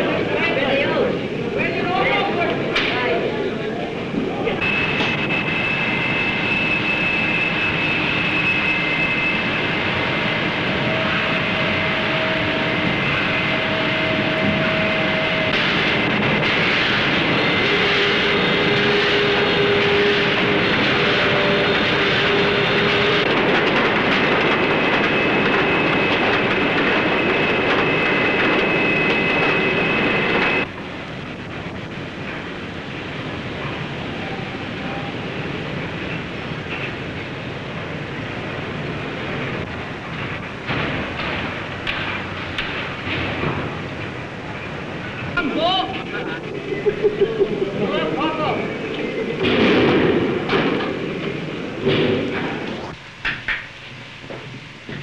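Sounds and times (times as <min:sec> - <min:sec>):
high whining tones: 0:04.4 - 0:23.4.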